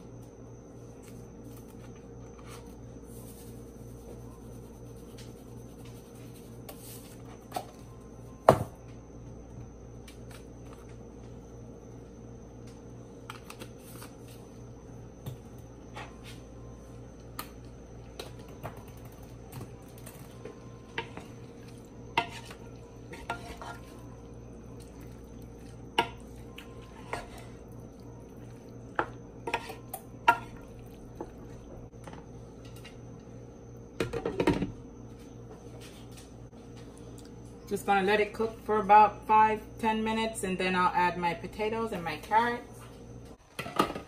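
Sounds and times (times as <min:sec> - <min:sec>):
steady hum: 0:00.0 - 0:43.7
wooden spoon scraping a pan: 0:22.2 - 0:24.0, 0:26.8 - 0:27.6.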